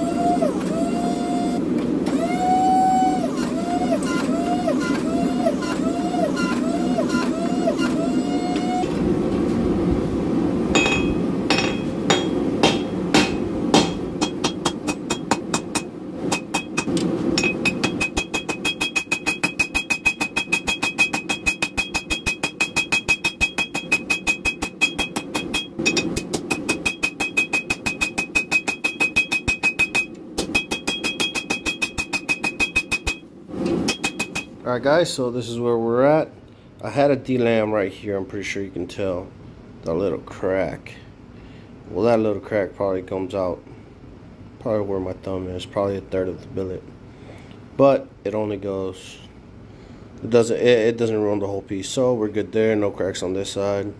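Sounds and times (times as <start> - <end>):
forging press whining: 0.0 - 34.6
hammer strikes on hot metal: 10.7 - 34.6
anvil ringing: 10.8 - 33.2, 33.8 - 34.6.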